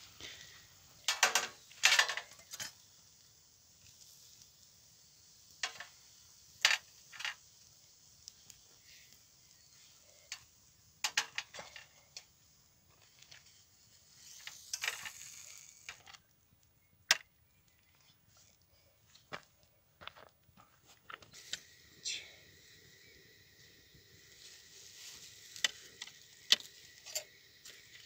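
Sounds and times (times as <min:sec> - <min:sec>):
skewers scraping clatter: 0:01.1 - 0:02.8, 0:12.9 - 0:16.2.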